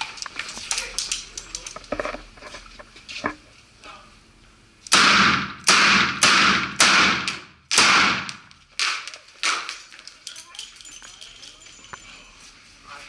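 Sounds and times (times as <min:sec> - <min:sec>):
revolver shots ringing indoors: 0:04.9 - 0:09.8.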